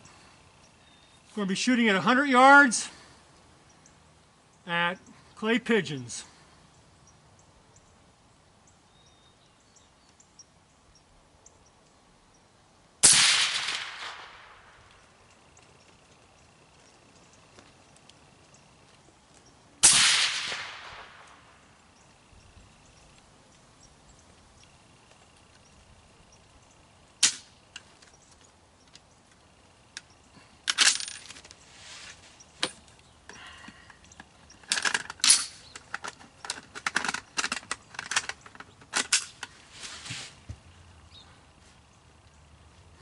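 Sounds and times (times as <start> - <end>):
suppressed rifle shot: 13.0 - 14.8, 19.8 - 21.6
metallic clicks and clatter: 30.7 - 31.6, 34.0 - 39.5.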